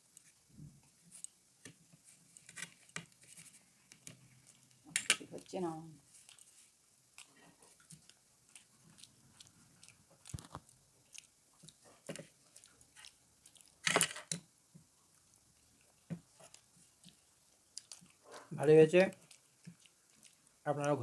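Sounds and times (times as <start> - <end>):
chewing and biting pizza: 7.2 - 13.8, 15.1 - 21.0.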